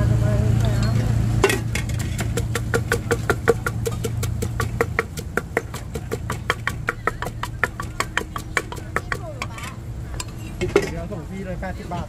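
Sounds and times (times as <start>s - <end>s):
steady low hum: 0.0s - 12.0s
pestle pounding in clay mortar: 1.4s - 9.7s.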